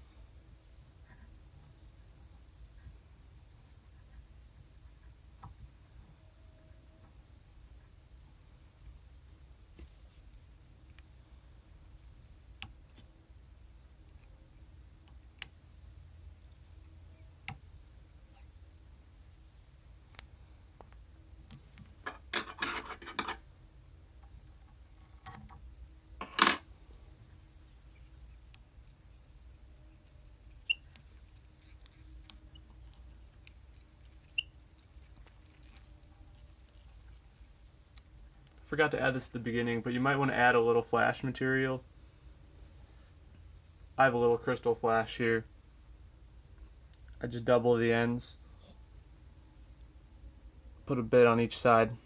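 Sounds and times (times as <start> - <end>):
low steady hum: 0.0 - 52.0
faint ticks and rustles: 26.8 - 38.8.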